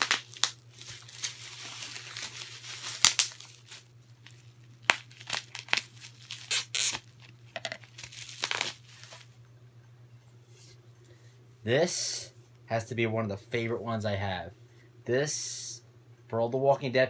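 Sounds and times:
bubble wrap crinkling and ripping: 0.0 - 9.3.

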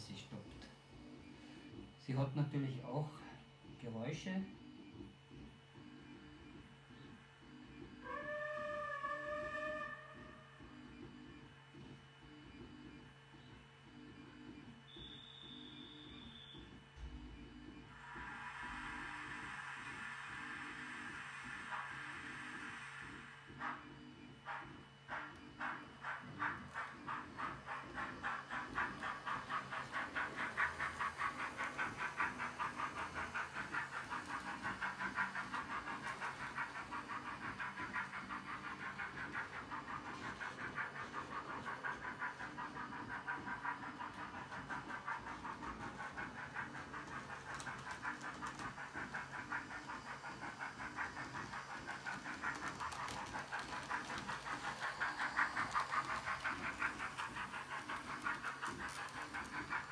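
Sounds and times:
steam locomotive chuffing: 8.0 - 10.5, 14.9 - 59.9
hiss of steam: 17.9 - 23.9, 24.5 - 59.9.

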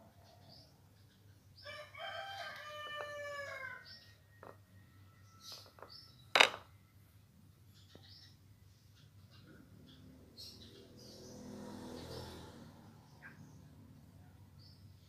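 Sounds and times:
rooster crowing: 1.6 - 4.0.

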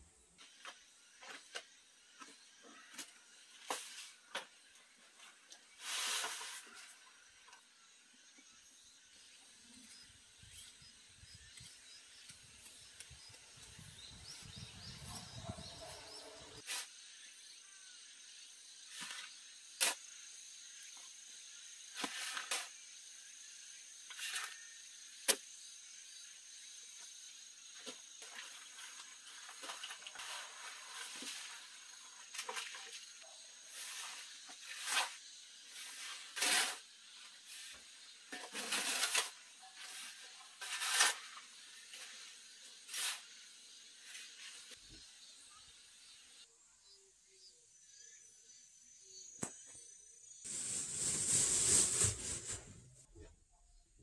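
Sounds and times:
shovel scraping dry soil: 5.8 - 6.8, 21.9 - 22.8, 28.7 - 32.7, 33.7 - 43.4, 50.5 - 52.8.

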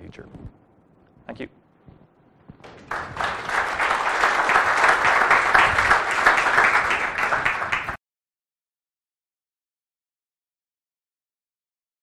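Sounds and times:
audience applauding: 2.6 - 8.0.

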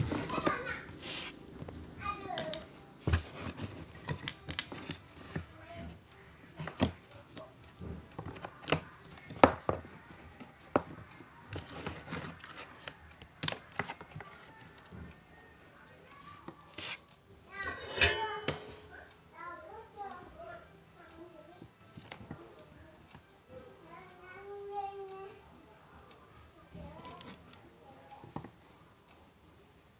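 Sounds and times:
clicks and taps handling wires: 0.9 - 15.2, 26.1 - 28.6.

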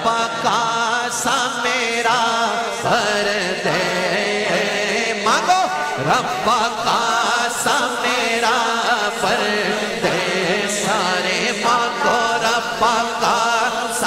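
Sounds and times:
wordless devotional melody: 0.0 - 14.0.

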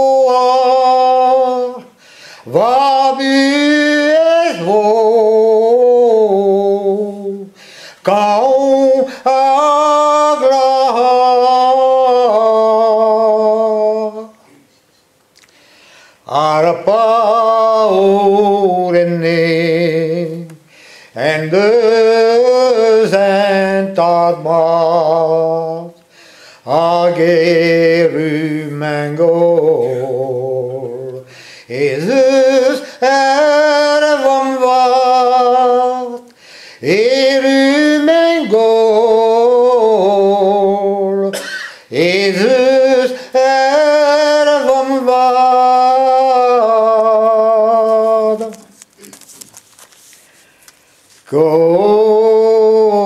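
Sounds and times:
man singing unaccompanied: 0.0 - 14.5, 16.2 - 26.0, 26.6 - 48.8, 51.2 - 53.0
man breathing: 2.0 - 2.5, 7.5 - 8.0, 14.5 - 16.3, 20.6 - 21.2, 26.0 - 26.7, 31.2 - 31.7, 36.3 - 36.8.

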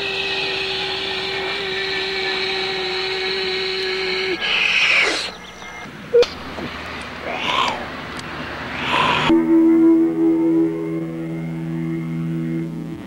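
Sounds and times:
spaceship hum: 8.7 - 13.0.

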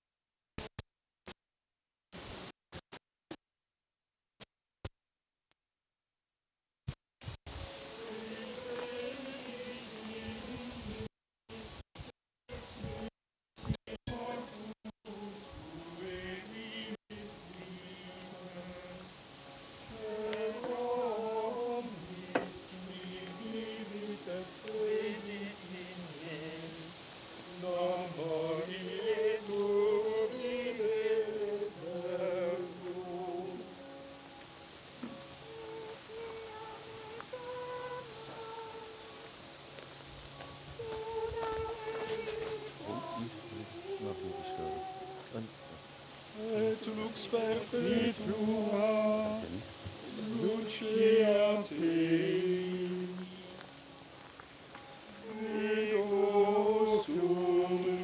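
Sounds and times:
men singing plainchant: 7.8 - 11.1, 13.9 - 19.2, 19.8 - 34.1, 40.8 - 53.8, 55.1 - 58.0
men chanting plainchant: 46.4 - 53.6, 55.2 - 58.0.

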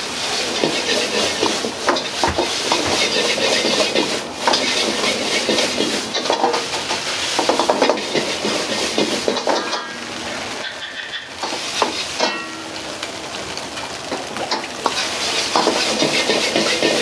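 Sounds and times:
rice sizzling in a wok: 0.0 - 17.0
metal ladle scraping a wok: 0.4 - 6.2, 14.9 - 17.0.

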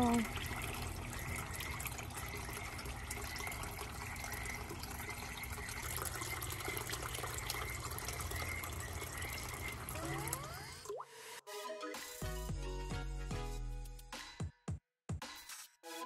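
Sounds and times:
fountain water trickling: 0.0 - 10.9.

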